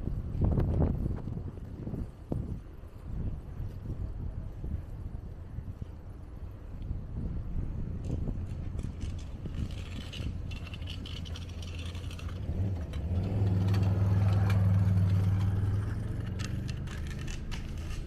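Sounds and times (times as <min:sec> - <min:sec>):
steady low rumble: 0:00.0 - 0:18.0
vehicle engine passing: 0:10.0 - 0:18.0.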